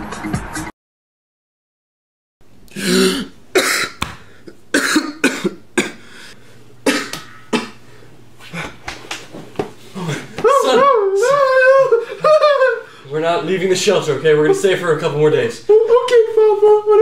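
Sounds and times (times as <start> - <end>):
man coughing: 2.8 - 4.0, 4.7 - 6.1, 6.8 - 7.8.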